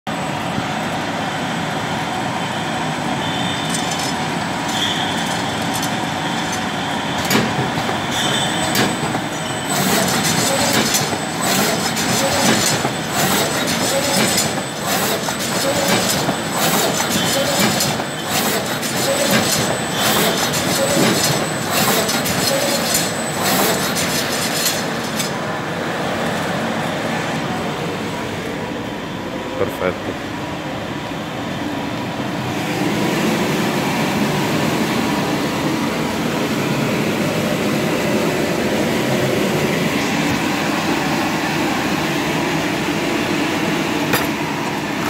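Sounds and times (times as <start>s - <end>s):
short mechanical clacks: 3.5s - 25.4s
shrink-wrapping machine clatter: 3.7s - 25.4s.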